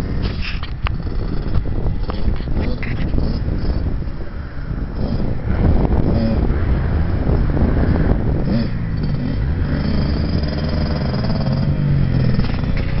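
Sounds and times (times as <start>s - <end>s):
dirt bike engine revving: 4.7s - 13.0s.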